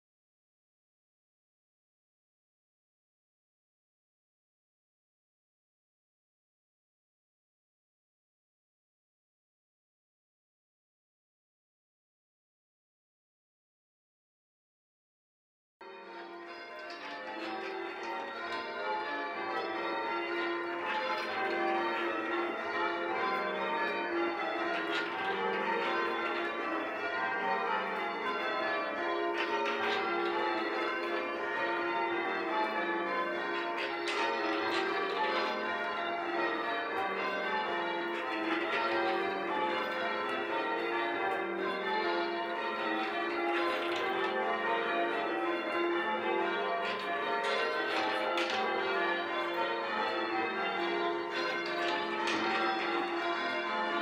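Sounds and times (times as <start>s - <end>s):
church bells change ringing: 15.8s - 54.0s.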